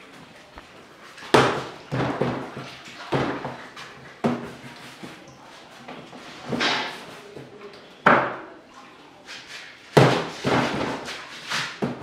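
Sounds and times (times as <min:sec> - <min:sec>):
dough thudding on steel table: 0:01.3 - 0:03.6, 0:10.0 - 0:12.0.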